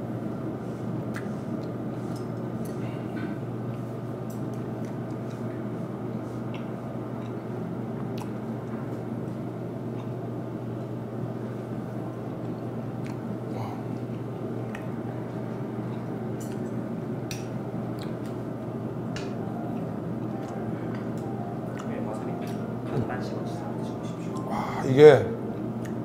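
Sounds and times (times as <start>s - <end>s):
low background hum: 0.0s - 26.0s
wet mouth clicks: 1.1s - 2.8s, 17.3s - 18.4s
chewing: 6.5s - 8.4s, 9.9s - 10.2s, 12.4s - 15.0s, 15.8s - 18.4s, 20.4s - 21.9s.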